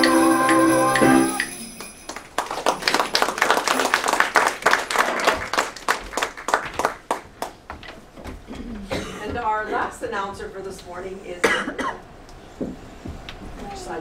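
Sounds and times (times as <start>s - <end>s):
audience clapping: 0.0s - 7.7s.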